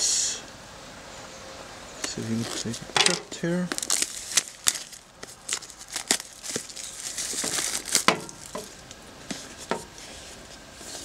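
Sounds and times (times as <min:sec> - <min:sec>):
plastic shrink-wrap crackling: 0:02.4 - 0:09.6.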